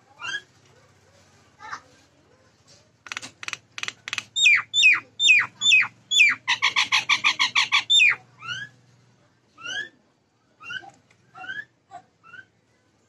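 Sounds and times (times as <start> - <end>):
myna calling: 3.1 - 8.7.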